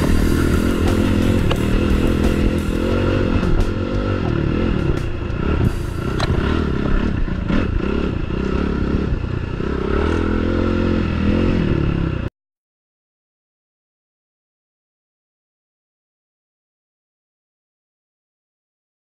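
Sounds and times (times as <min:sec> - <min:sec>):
motorcycle engine revving: 0:00.0 - 0:12.3.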